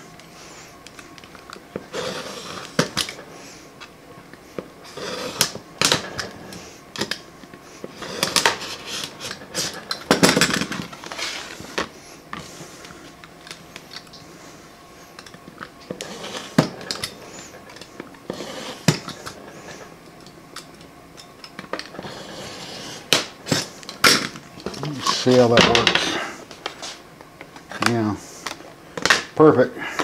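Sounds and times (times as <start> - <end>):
knife scraping plastic: 1.8 - 3.2, 4.8 - 7.2, 7.8 - 12.9, 15.9 - 19.9, 21.7 - 27.0.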